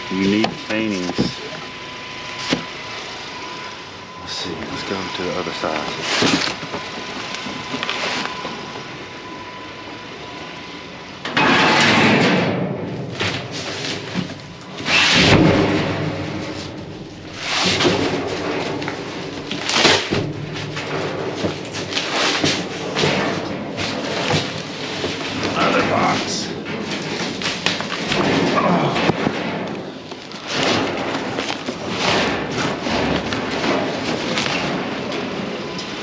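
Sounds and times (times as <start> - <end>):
box scraping in metal dumpster: 14.8 - 35.6.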